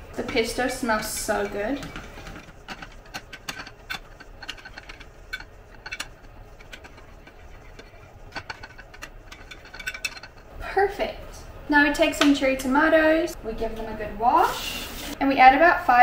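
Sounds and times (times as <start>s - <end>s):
metal spoon scraping glass dish: 0.2s - 10.5s.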